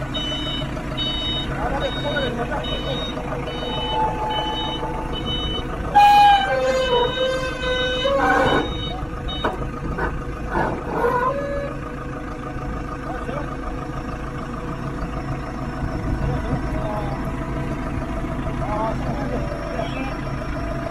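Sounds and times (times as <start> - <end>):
diesel engines running: 0.0 - 20.9
loud held tone changing pitch: 1.2 - 9.5.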